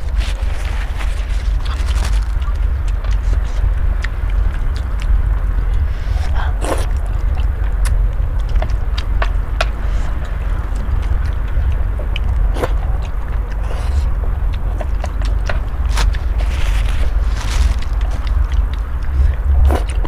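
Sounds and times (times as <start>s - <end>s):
steady low rumble: 0.0s - 20.0s
noodles being slurped: 5.8s - 8.0s, 9.7s - 20.0s.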